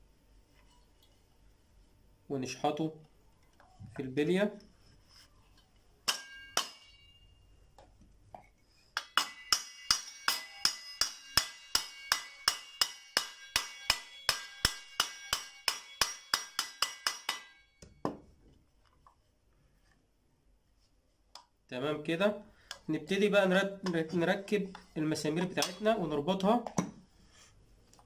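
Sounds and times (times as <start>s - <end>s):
hammer tapping metal cover: 9.0s - 18.2s, 25.4s - 26.0s.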